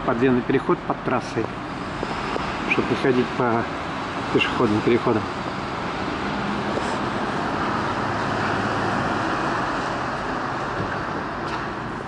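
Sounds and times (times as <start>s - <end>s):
road traffic noise: 0.0s - 12.0s.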